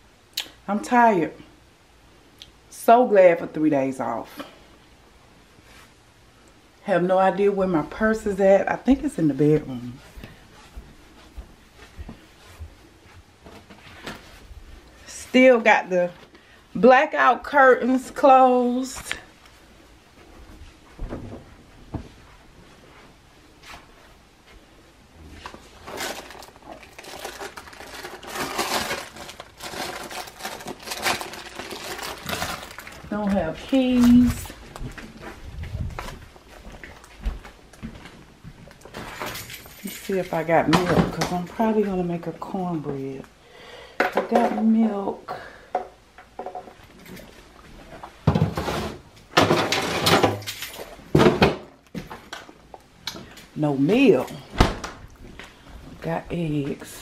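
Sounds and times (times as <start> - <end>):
purse contents rustling: 25.4 - 35.4.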